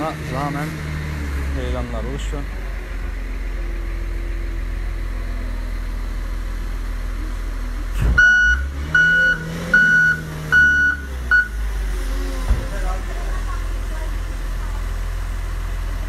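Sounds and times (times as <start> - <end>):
machine engine rumbling: 0.0 - 16.0
reversing alarm beeps: 8.2 - 11.6.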